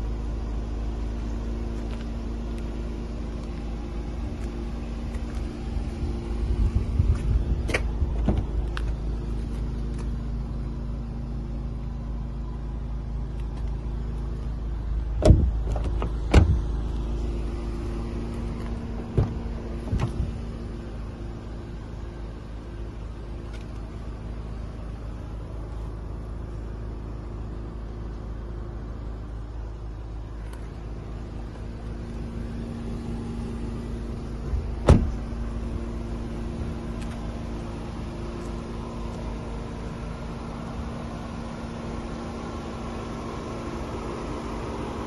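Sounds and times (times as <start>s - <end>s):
car engine idling: 0.0s - 45.0s
sharp thump: 15.2s - 16.6s, 19.1s - 20.3s, 34.8s - 35.2s.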